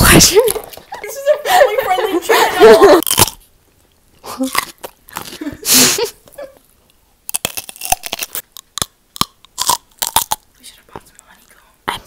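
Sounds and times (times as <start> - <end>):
cucumber crunching while chewed: 3.0 - 3.5, 4.2 - 5.5, 7.2 - 10.6.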